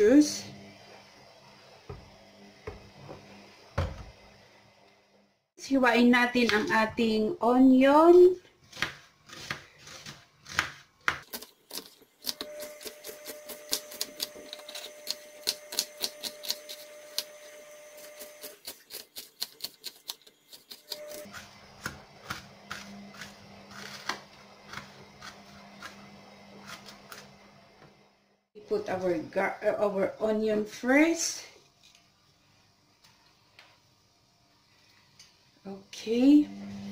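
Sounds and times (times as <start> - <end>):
knife chopping on plastic board: 8.7 - 12.4.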